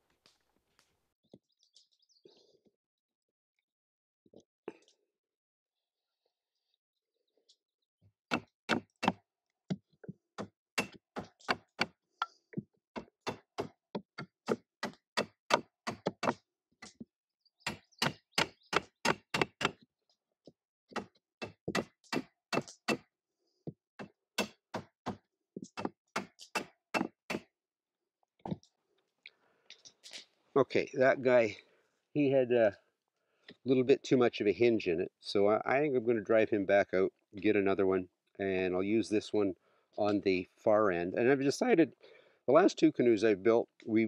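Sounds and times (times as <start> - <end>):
axe striking wooden block: 8.3 - 9.2, 10.4 - 11.9, 13.0 - 16.4, 21.0 - 23.1, 24.0 - 25.2, 25.8 - 27.5.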